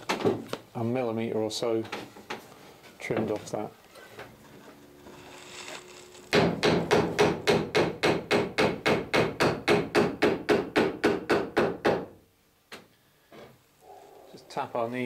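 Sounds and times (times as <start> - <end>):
hand tool striking wood: 6.3 - 12.0.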